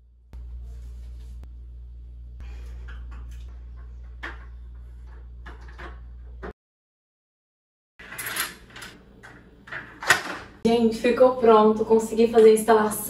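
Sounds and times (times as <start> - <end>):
steady low hum: 0.0 - 6.5
knocks and scrapes against wall tiles: 2.5 - 6.5.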